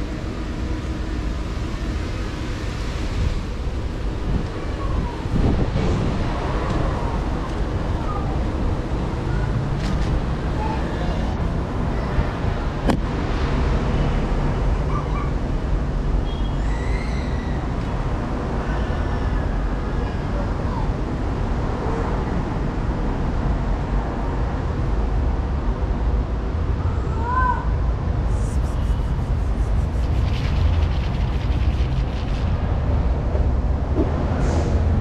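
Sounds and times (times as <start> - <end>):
low outdoor rumble: 0.0 - 14.8, 23.8 - 35.0.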